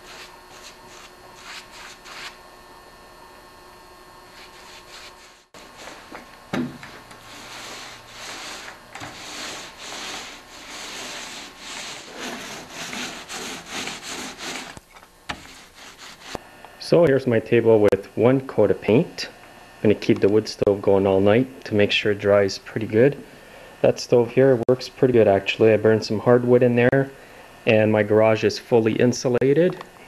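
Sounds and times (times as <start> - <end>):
brush spreading paint: 0.0 - 2.4, 4.2 - 6.1, 7.2 - 16.4
paint roller rasping: 0.0 - 2.4, 4.2 - 16.4.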